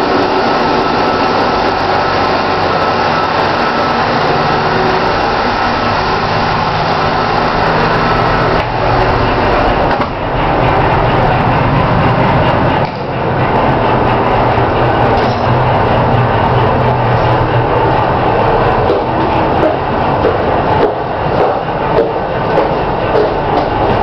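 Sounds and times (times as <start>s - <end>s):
ship machinery drone: 0.0s - 24.0s.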